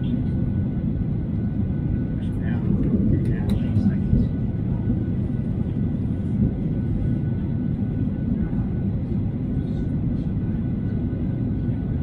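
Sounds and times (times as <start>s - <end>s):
airplane cabin rumble: 0.0s - 12.0s.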